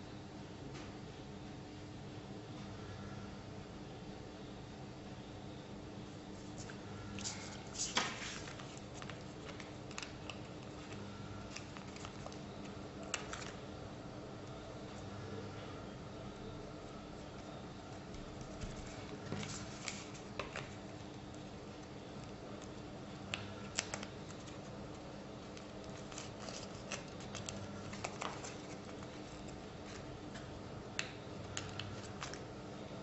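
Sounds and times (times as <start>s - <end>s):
faint steady hum: 0.0s - 33.0s
paper rustling: 6.4s - 13.6s, 18.2s - 22.8s, 23.6s - 30.5s, 31.4s - 32.5s.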